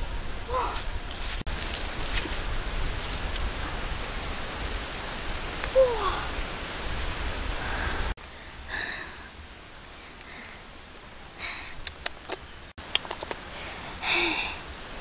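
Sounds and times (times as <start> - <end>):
steady outdoor hiss: 0.0 - 15.0.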